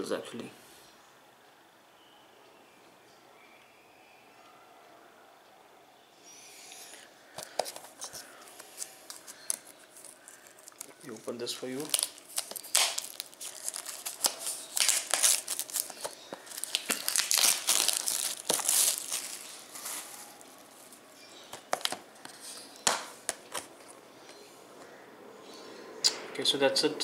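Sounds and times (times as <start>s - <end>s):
plastic wrap crinkling: 7.4s - 24.0s.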